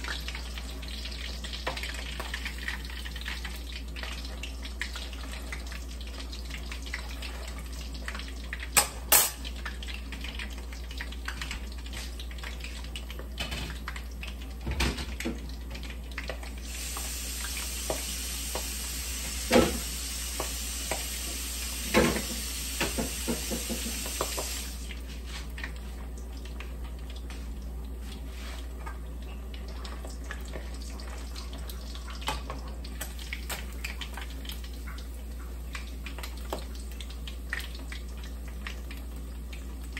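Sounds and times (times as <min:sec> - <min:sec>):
fish sizzling in hot oil: 0:00.0 - 0:39.9.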